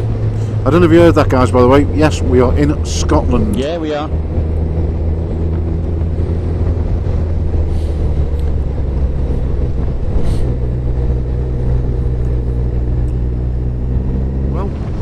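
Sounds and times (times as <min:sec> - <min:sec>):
motorcycle engine running: 0:00.0 - 0:15.0
wind noise: 0:04.0 - 0:15.0.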